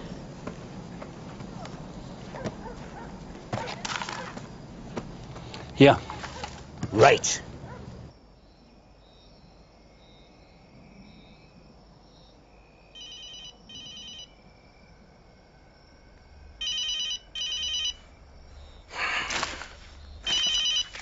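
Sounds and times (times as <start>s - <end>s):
telephone double ringing: 16.6s - 18.0s, 20.3s - 21.0s.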